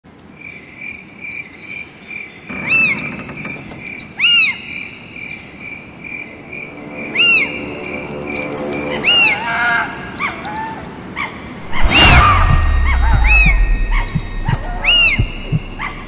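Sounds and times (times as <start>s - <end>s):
high ticking: 11.6s - 16.0s.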